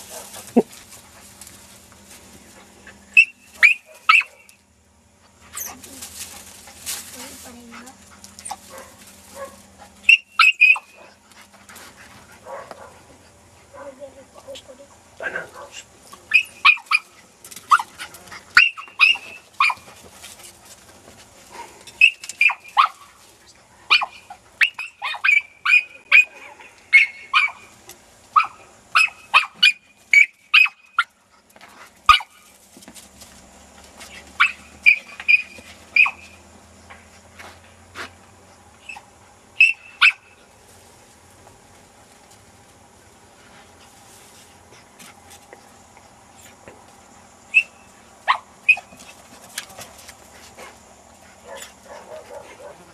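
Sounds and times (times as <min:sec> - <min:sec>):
dog barking and yelping: 0:03.2 - 0:04.6, 0:08.4 - 0:11.2, 0:12.4 - 0:13.1, 0:15.2 - 0:20.0, 0:22.0 - 0:23.1, 0:23.9 - 0:31.2, 0:32.1 - 0:32.4, 0:34.2 - 0:36.4, 0:38.8 - 0:40.4, 0:47.5 - 0:49.0, 0:51.4 - 0:52.9.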